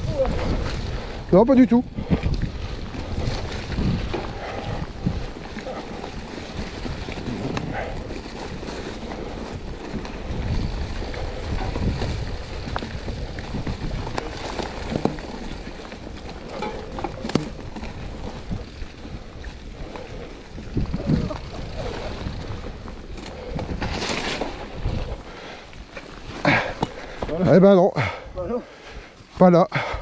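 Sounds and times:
wind buffeting microphone: 0.0 - 29.2
bike tyres rumbling on trail: 0.0 - 30.0
bike clicks and knocks: 5.3 - 20.2.

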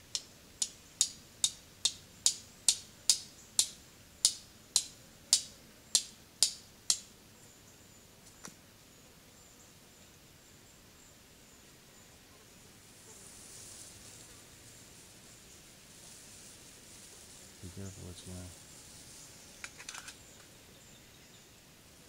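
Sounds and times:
steel striker hitting flint: 0.1 - 7.1.

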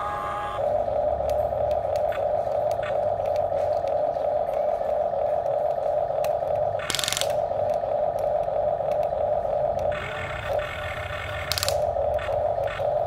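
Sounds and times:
toy motors and gears whining: 0.0 - 13.0
gear ratcheting: 6.8 - 7.4, 9.9 - 12.8.

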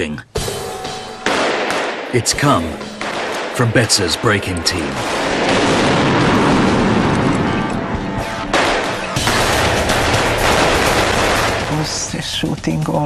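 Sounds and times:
background music: 0.0 - 13.0
automatic gunfire: 8.5 - 11.9.

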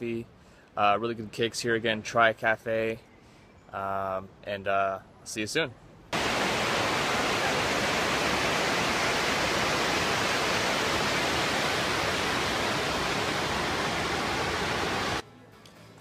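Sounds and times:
water rushing over a weir: 6.2 - 15.2.

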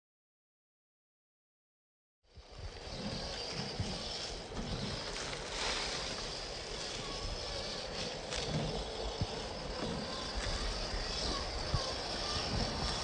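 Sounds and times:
toy car motor and gear whir: 2.3 - 13.0
wind hiss: 2.3 - 13.0
tyres crunching on leaves: 3.2 - 13.0.

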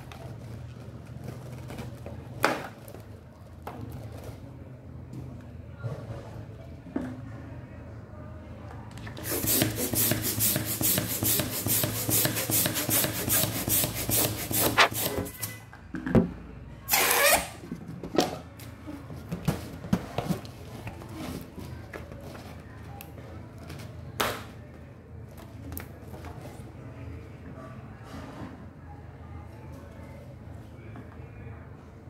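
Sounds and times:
rubbing balloon rubber: 9.2 - 15.4.

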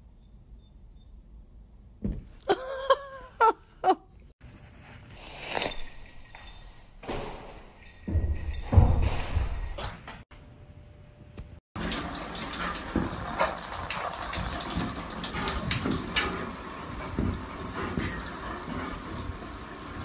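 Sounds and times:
shower water spraying: 11.8 - 20.0.

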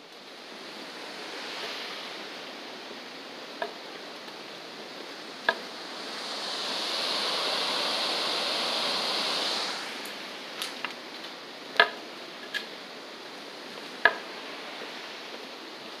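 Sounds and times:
river water rushing over rocks: 0.1 - 16.0.

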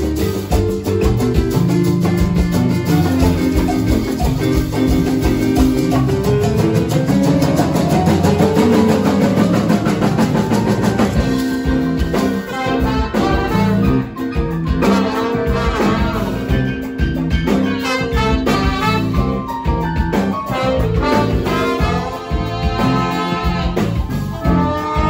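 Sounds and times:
bass guitar: 0.0 - 25.0
electric guitar: 0.0 - 25.0
steady drum beat: 0.0 - 25.0
horn section playing: 7.5 - 17.0, 17.6 - 19.5, 20.4 - 25.0.

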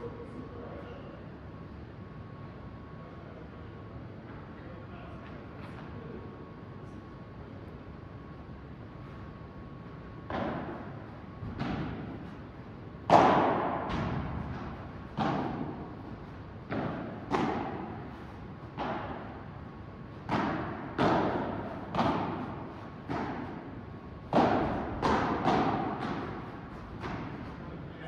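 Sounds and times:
ball bouncing off court and walls: 10.2 - 27.6
ball struck by rackets: 10.2 - 27.6.

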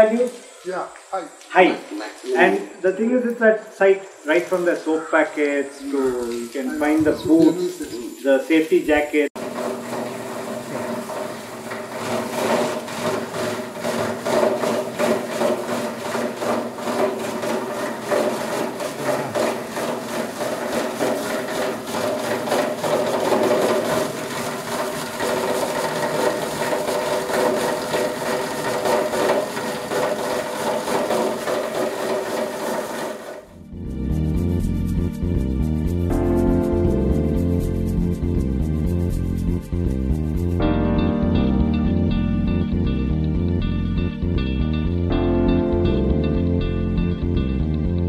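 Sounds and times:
shredder motor hum: 9.4 - 33.6.

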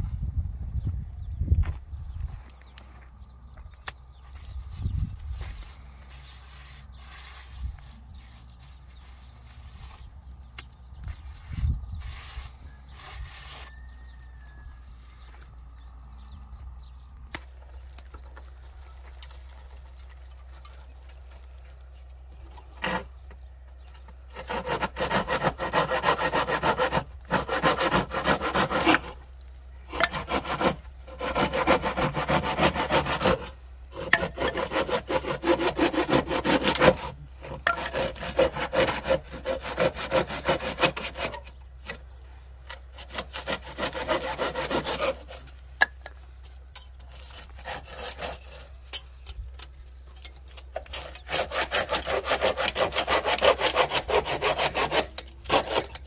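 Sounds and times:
hand saw cutting wood: 5.6 - 10.7, 11.4 - 14.4, 22.4 - 23.2, 23.8 - 46.2, 46.9 - 49.4, 50.5 - 56.0.

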